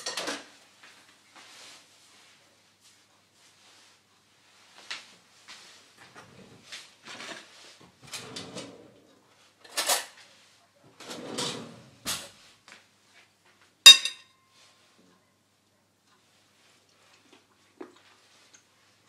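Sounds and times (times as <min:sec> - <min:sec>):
fork clinking in bowl: 0:13.9 - 0:14.3.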